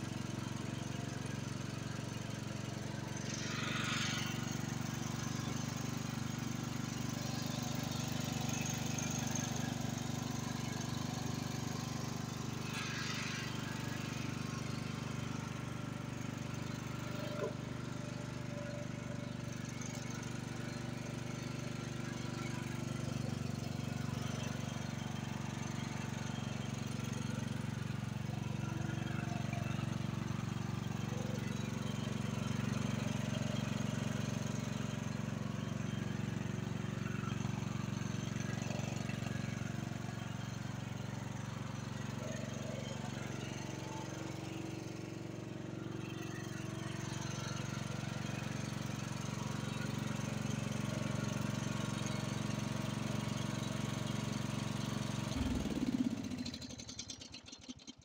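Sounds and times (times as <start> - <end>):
engine winding down: 0.0 - 58.0
riding lawn mower engine running: 0.0 - 58.0.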